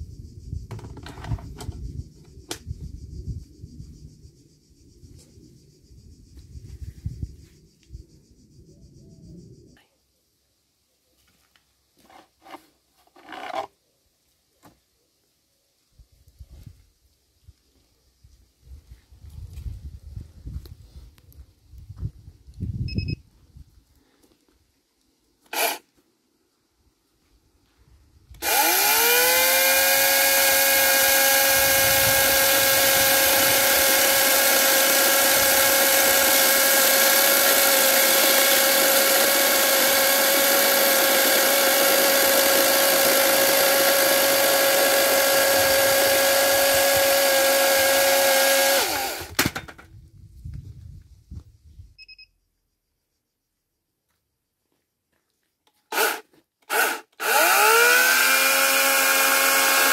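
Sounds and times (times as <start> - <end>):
electric chainsaw whining: 13.1 - 13.7, 25.4 - 25.9, 28.4 - 49.8, 55.9 - 59.9.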